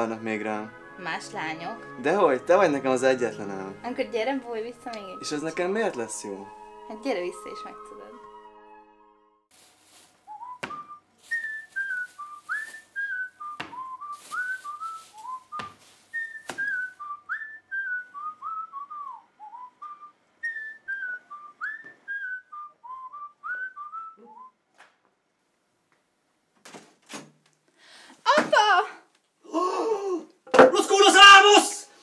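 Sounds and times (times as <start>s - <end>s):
person whistling a tune: 10.3s - 24.6s.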